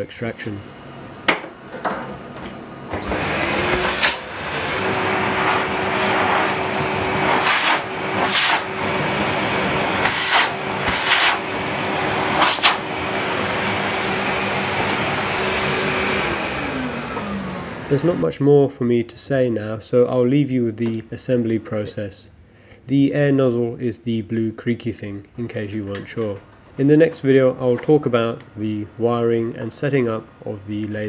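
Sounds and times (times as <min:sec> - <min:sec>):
dust extraction vacuum humming: 0:00.0 - 0:18.3
hose sucking sawdust: 0:03.0 - 0:15.8.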